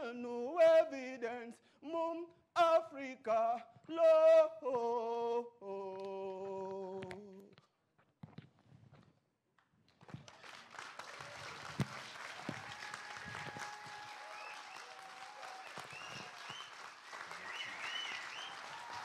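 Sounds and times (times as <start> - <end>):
audience applauding: 10.2 - 19.0.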